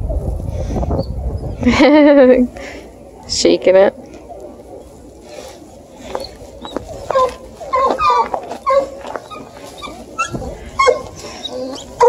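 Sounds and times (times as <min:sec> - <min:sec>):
puppies yipping and whining: 0:05.4 - 0:12.0.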